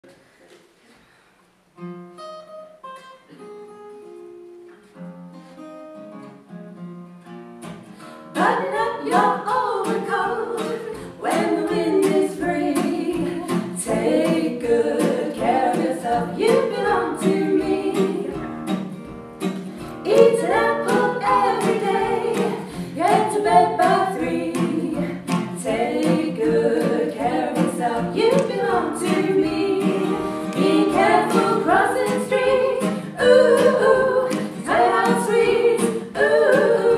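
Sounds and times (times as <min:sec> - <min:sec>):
acoustic guitar picking: 0:01.8 - 0:36.9
voices singing together: 0:08.4 - 0:18.7, 0:20.0 - 0:36.9.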